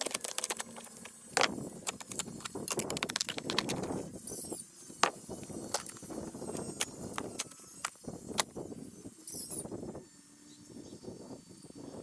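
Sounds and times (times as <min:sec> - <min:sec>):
shovel digging in soil: 0:00.0 - 0:03.9.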